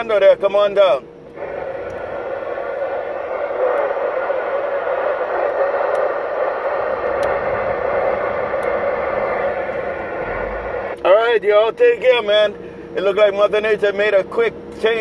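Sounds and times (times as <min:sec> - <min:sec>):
radio static hiss: 0:01.3 - 0:11.2.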